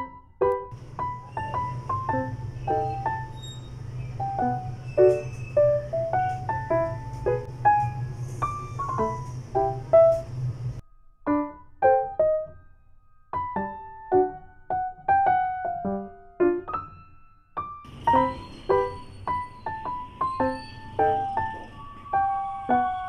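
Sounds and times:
soft piano melody: 0:00.0 - 0:23.0
steady low hum: 0:00.8 - 0:10.8.

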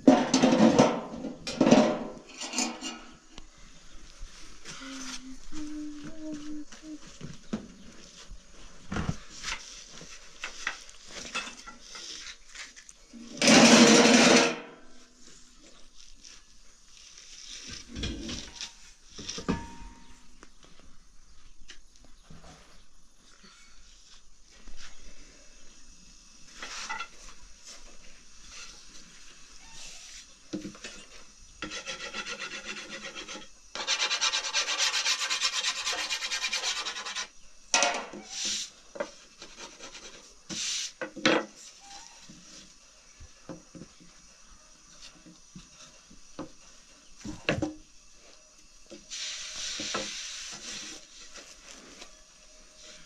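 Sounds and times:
rubbing and rasping scrapes: 0:30.8 - 0:37.4, 0:38.3 - 0:41.0.

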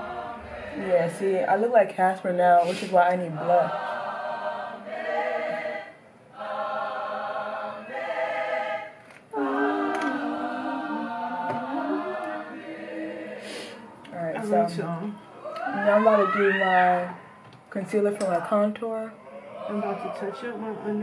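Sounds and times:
choir singing sustained notes: 0:00.0 - 0:01.8, 0:03.3 - 0:14.4.

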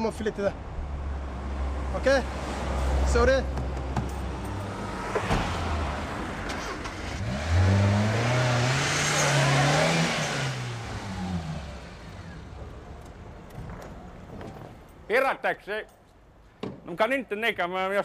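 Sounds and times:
car engine revving: 0:04.3 - 0:12.8.

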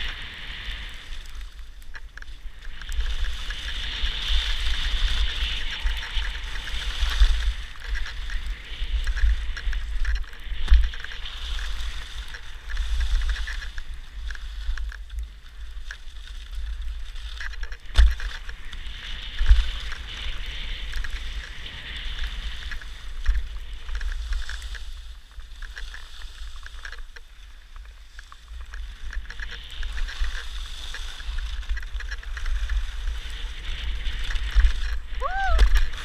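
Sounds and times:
skis scraping over snow: 0:00.0 - 0:36.0
wind buffeting microphone: 0:29.3 - 0:36.0.

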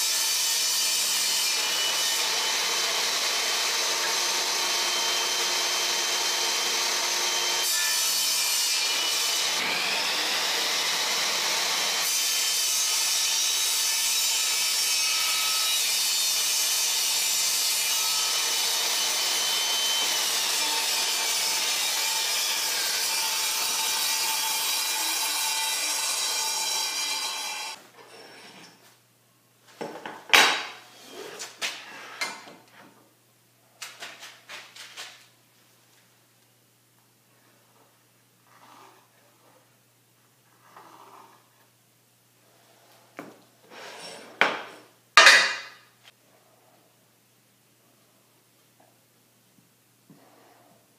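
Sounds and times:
table saw cutting board: 0:00.0 - 0:27.8.

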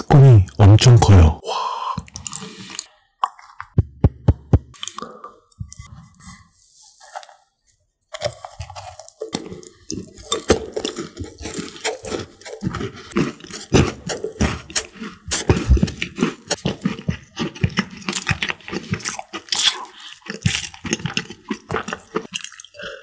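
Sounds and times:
crunching and wet chewing: 0:02.0 - 0:03.7, 0:08.1 - 0:23.0.

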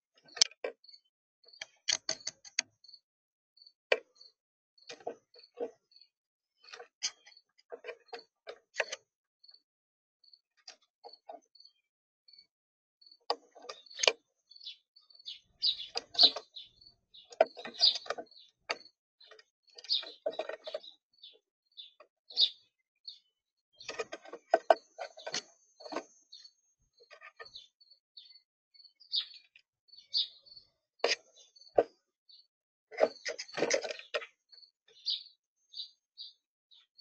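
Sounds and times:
birds chirping: 0:10.2 - 0:37.0
birds pecking and landing on feeder: 0:17.3 - 0:20.9, 0:32.9 - 0:34.4.

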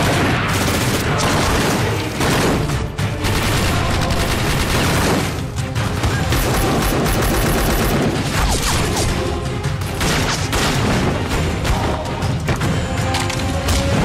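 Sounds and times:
automatic rifle gunfire: 0:00.0 - 0:05.4, 0:06.0 - 0:08.4.

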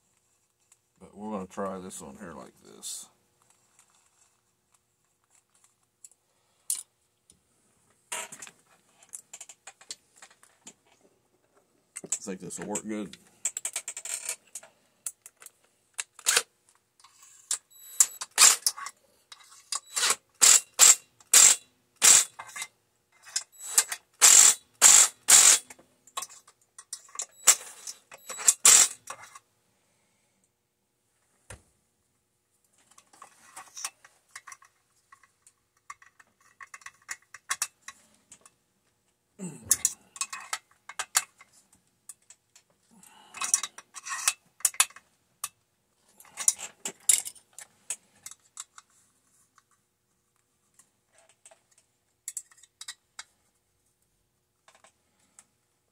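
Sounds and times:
metallic clicks of parts handled: 0:05.2 - 0:06.9, 0:11.9 - 0:29.4, 0:32.8 - 0:38.6, 0:39.6 - 0:45.6, 0:46.2 - 0:48.9, 0:50.7 - 0:53.3, 0:54.6 - 0:55.5
cordless drill running: 0:20.4 - 0:22.3, 0:23.7 - 0:25.6, 0:28.6 - 0:29.0.

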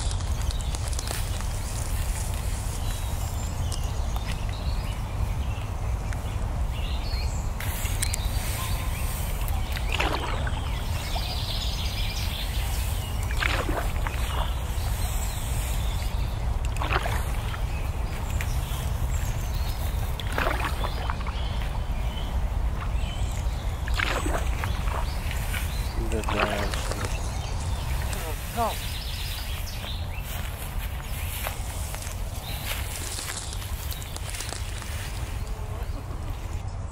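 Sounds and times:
oars splashing in water: 0:07.6 - 0:36.1.

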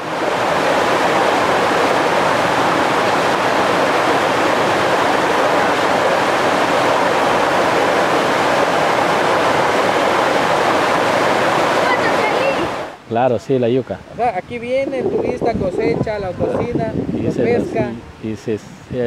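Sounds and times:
waterfall rushing over rocks: 0:00.0 - 0:13.0.

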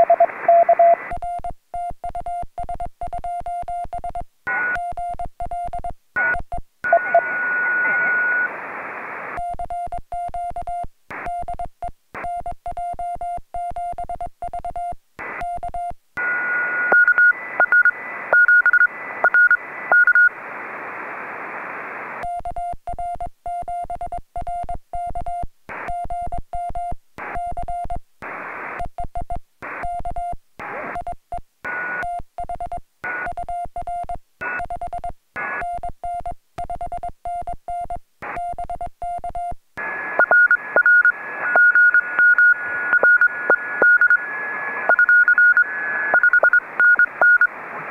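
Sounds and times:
high-pitched morse signal beeping: 0:00.0 - 0:01.0, 0:06.9 - 0:08.5, 0:16.2 - 0:20.3, 0:40.2 - 0:44.3, 0:44.9 - 0:47.5
radio receiver hiss: 0:00.0 - 0:01.1, 0:06.2 - 0:09.4, 0:15.2 - 0:15.4, 0:16.2 - 0:22.2, 0:28.2 - 0:28.8, 0:30.6 - 0:31.0, 0:39.8 - 0:47.9
morse code sidetone beeps: 0:00.0 - 0:08.5, 0:12.2 - 0:20.3, 0:40.2 - 0:44.3, 0:44.9 - 0:47.5.

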